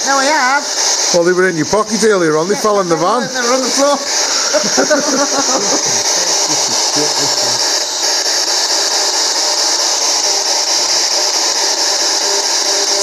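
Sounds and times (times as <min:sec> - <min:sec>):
radio static hiss: 0:01.3 - 0:07.9.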